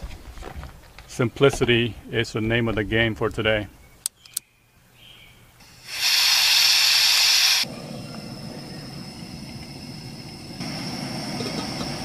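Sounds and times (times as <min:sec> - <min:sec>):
gas hissing from burner: 0:05.6 - 0:12.0
steady stove flame noise: 0:05.6 - 0:12.0.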